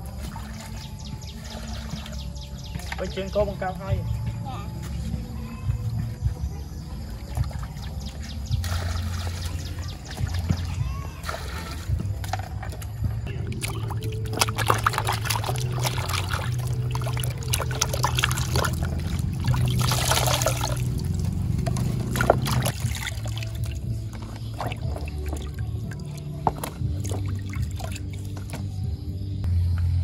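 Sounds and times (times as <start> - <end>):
water splashing in plastic basin: 0.0 - 3.1, 7.0 - 28.8
background music: 0.0 - 30.0
water pouring: 11.2 - 28.6.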